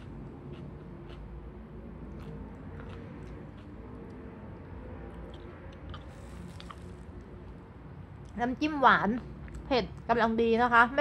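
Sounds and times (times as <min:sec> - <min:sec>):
person chewing food: 0:00.0 - 0:07.3.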